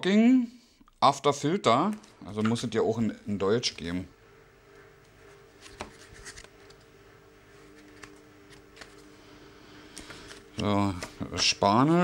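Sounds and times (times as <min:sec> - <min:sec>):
low steady hum: 0:00.0 - 0:12.0
paper pages rustling: 0:05.2 - 0:06.9, 0:07.5 - 0:09.3, 0:09.9 - 0:11.4.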